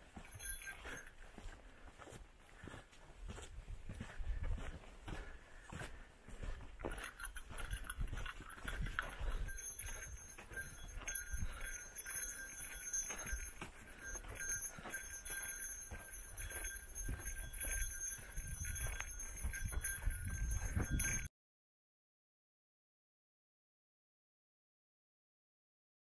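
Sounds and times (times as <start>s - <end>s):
small bell jingling: 0.0s - 1.6s, 6.8s - 21.3s
footsteps on rocky trail: 0.0s - 21.3s.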